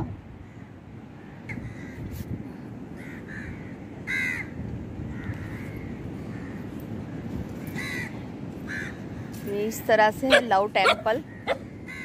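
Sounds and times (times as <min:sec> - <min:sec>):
crows cawing: 0:03.0 - 0:04.5, 0:05.1 - 0:09.4, 0:11.2 - 0:12.0.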